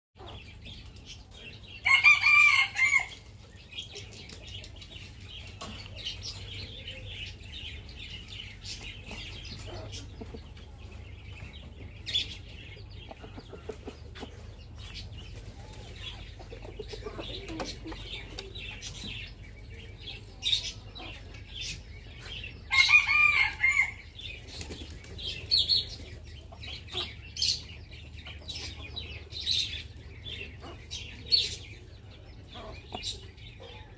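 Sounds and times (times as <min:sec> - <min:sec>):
birds chirping: 0:00.2 - 0:33.9
rooster crowing: 0:01.8 - 0:03.1.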